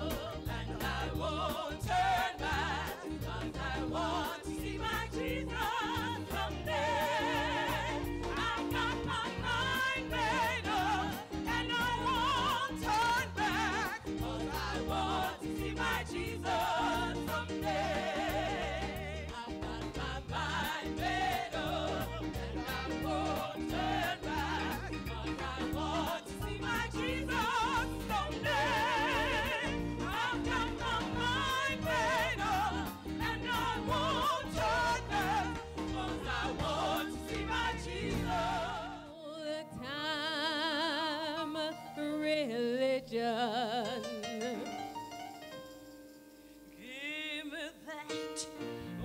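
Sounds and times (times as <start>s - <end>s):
band playing steady beat: 0.0s - 38.7s
women singing gospel: 0.0s - 45.0s, 46.8s - 49.0s.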